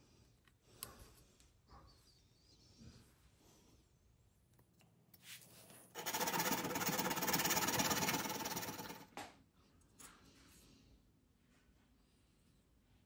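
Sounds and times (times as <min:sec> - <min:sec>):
small motor rattling: 0:06.0 - 0:09.1.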